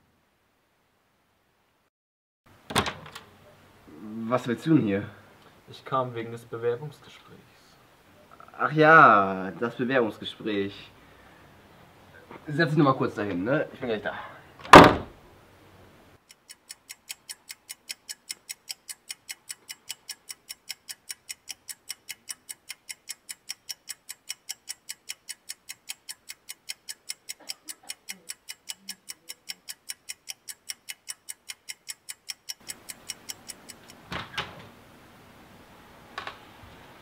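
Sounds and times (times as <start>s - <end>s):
clock ticking: 16.2s - 34.1s.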